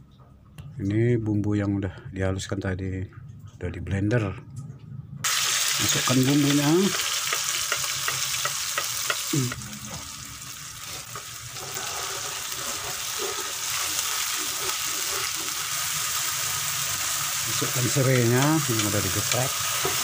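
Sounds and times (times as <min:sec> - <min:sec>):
paste sizzling in hot oil: 0:05.3 - 0:20.0
metal spatula scraping a wok: 0:10.8 - 0:15.8.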